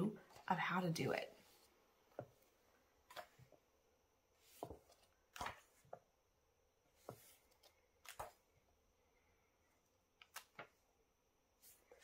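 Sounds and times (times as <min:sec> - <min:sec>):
paper pages turning: 0:04.4 - 0:06.0, 0:07.0 - 0:08.5, 0:10.2 - 0:10.8.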